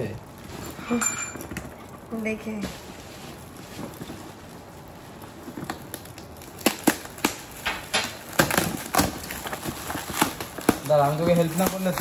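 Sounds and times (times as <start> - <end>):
gift packaging being torn open: 3.3 - 12.0.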